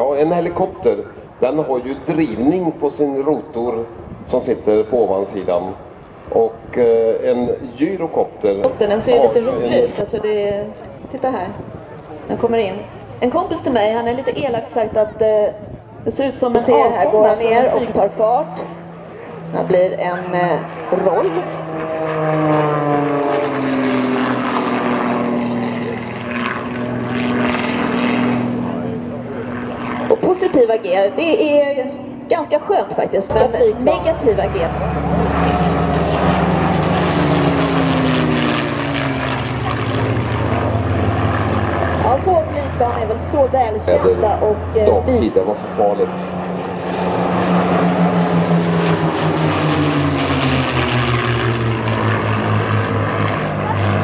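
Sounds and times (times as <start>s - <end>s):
biplane engine and propeller: 0.0s - 54.0s.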